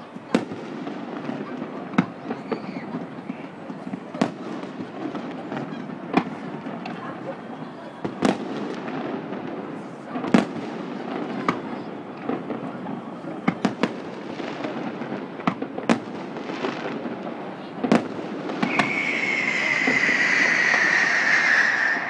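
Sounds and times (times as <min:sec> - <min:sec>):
fireworks bangs: 0:00.2 - 0:22.0
high whine sliding down: 0:18.7 - 0:22.0.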